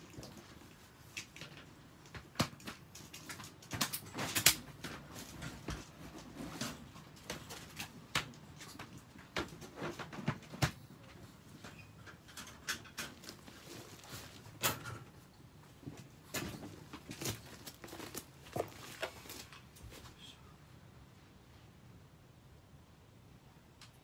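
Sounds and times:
pet toilet sheets crinkling: 0:13.1 - 0:14.8, 0:15.9 - 0:20.0.

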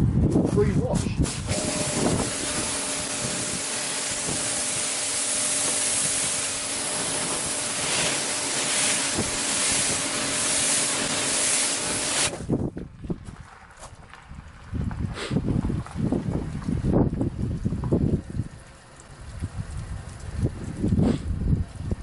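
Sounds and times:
pressure washer spraying water: 0:00.9 - 0:12.5.

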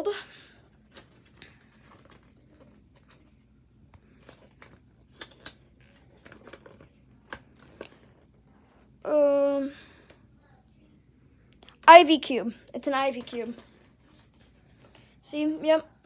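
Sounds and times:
paper rustling and crinkling: 0:00.7 - 0:08.2, 0:13.0 - 0:15.1.

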